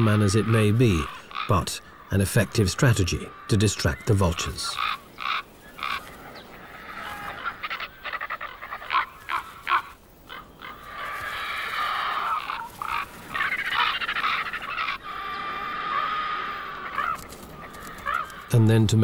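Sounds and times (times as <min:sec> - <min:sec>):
ravens and vultures calling harshly: 0:00.0 - 0:19.0.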